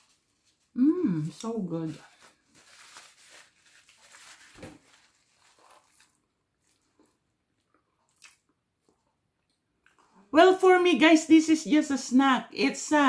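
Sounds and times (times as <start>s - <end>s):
paper napkin rustling: 0.0s - 6.2s.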